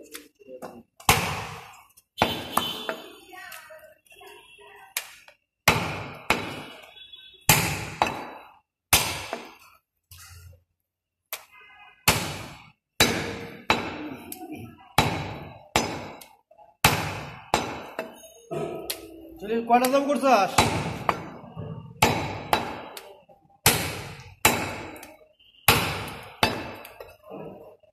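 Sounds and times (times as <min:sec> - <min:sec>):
cleaver chopping meat and bone: 0:05.0 - 0:06.8, 0:07.5 - 0:09.5, 0:11.3 - 0:14.2, 0:14.9 - 0:18.1, 0:19.8 - 0:25.1, 0:25.7 - 0:27.1.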